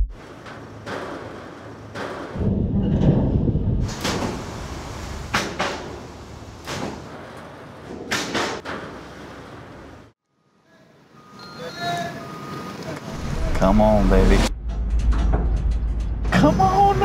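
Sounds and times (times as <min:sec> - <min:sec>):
trucks banging over steel ramps: 0:00.2 - 0:10.1
low vehicle rumble: 0:13.1 - 0:17.0.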